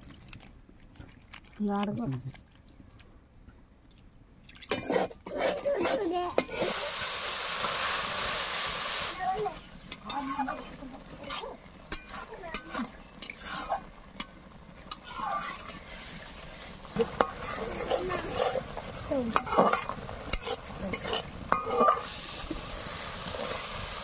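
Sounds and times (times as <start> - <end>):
curry bubbling: 0.0 - 24.0
steady sizzle: 2.6 - 24.0
metal spatula scraping pan: 4.7 - 7.0, 9.9 - 14.3, 14.9 - 22.2.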